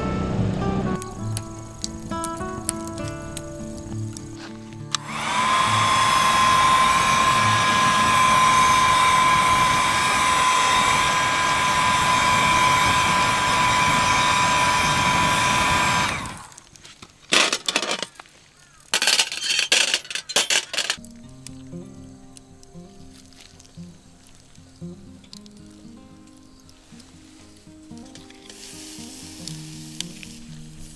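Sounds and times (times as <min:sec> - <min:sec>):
battery blower motor whine: 0:04.9 - 0:16.6.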